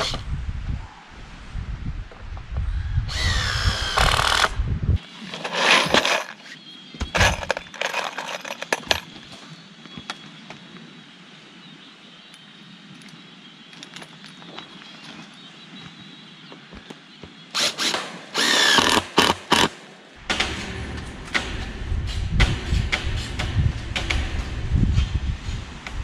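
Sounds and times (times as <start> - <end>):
cordless drill running: 3.1 - 4.5, 17.6 - 19.0
screws rattling in plastic tub: 5.3 - 6.5, 7.2 - 9.0
low rumble: 20.2 - 26.0.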